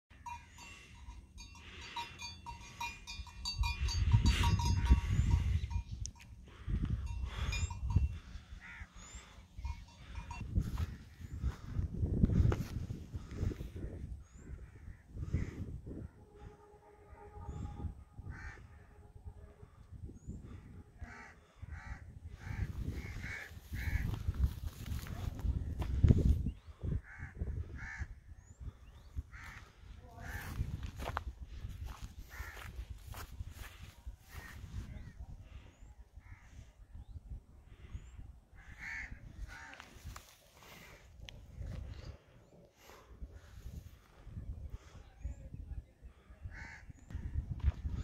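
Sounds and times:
crow cawing: 8.5 - 9.4, 18.3 - 19.0, 21.0 - 24.2, 27.0 - 28.2, 29.3 - 30.6, 32.3 - 33.7, 38.6 - 40.8, 46.5 - 46.9.

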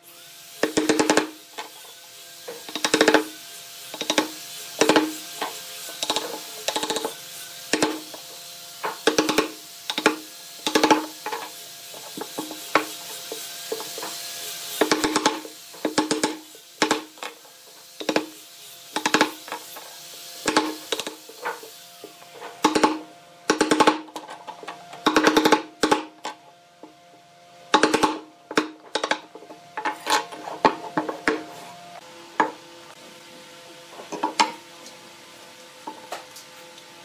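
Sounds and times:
mallet striking chisel: 2.6 - 3.3, 4.0 - 5.2, 6.0 - 8.1, 8.9 - 11.2, 14.8 - 17.2, 22.6 - 24.1, 27.8 - 29.2.

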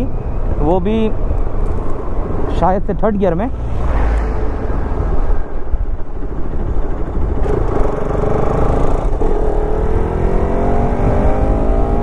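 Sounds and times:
wind and road rumble: 0.0 - 12.0
motorcycle engine accelerating: 4.9 - 12.0.

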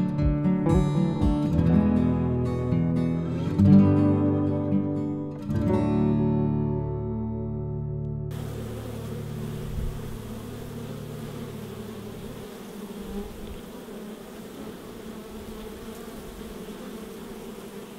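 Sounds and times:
honeybees buzzing: 8.3 - 17.9.

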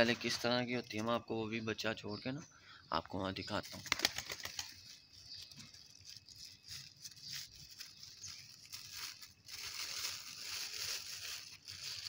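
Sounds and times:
plastic bag crinkling: 3.8 - 12.0.

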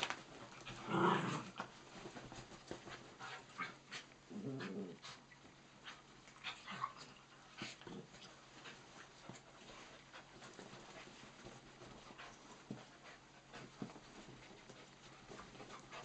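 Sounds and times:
scuffling on bedding: 0.0 - 4.1, 7.6 - 16.0.

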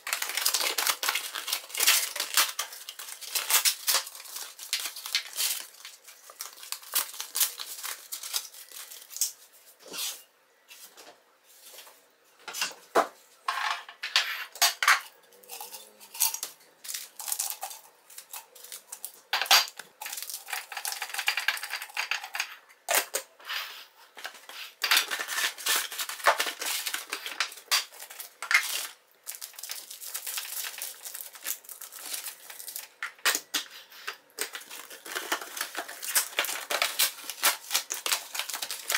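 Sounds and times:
sachets clinking into glass jar: 0.0 - 9.4, 15.4 - 22.4, 24.9 - 33.2, 34.4 - 38.9
paper and cardboard rustling: 23.6 - 33.0, 33.8 - 38.9.

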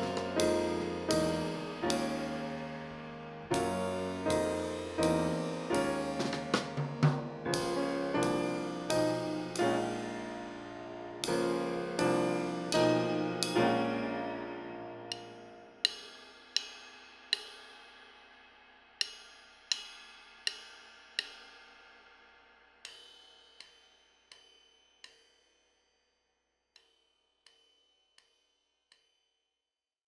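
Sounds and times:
sustained piano chord: 0.0 - 15.8
cymbal tapped with a stick: 0.0 - 25.6, 26.8 - 29.1.

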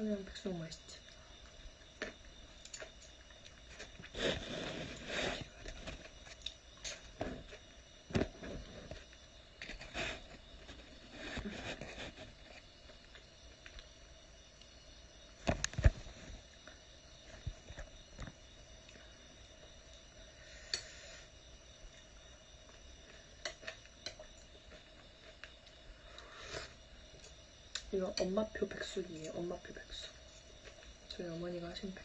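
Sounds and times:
chewing food: 21.9 - 27.9.

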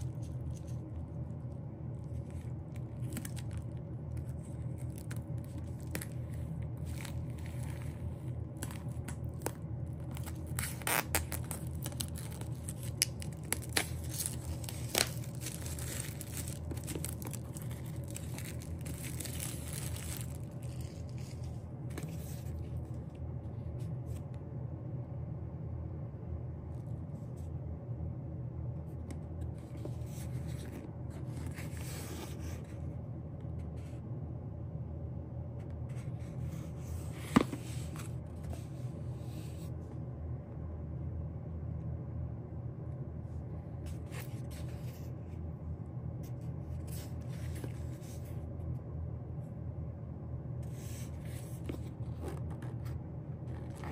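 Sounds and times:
paper and plastic rustling: 0.0 - 1.2, 2.0 - 23.1
steady low hum: 0.0 - 53.9.

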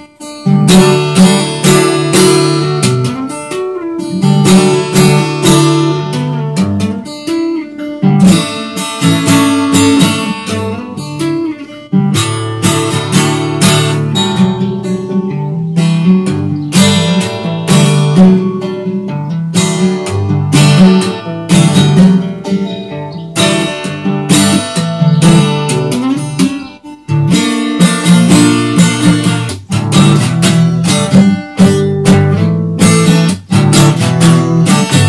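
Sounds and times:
fingerstyle acoustic guitar: 0.0 - 35.0.

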